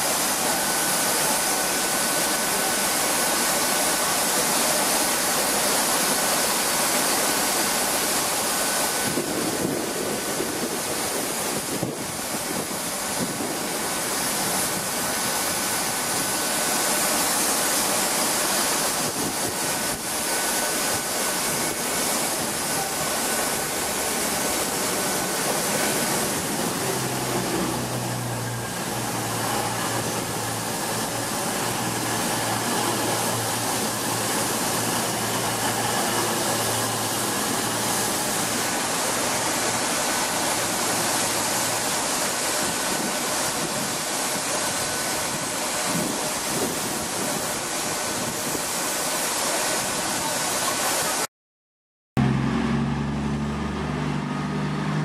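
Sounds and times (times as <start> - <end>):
train rushing: 0.0 - 51.3
diesel engines humming: 20.7 - 42.7, 52.2 - 55.0.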